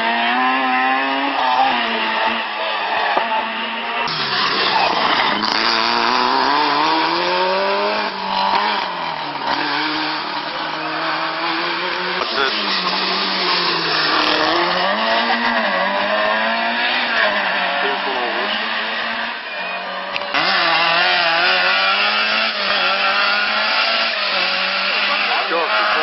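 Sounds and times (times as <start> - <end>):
rally car engines revving: 0.0 - 26.0.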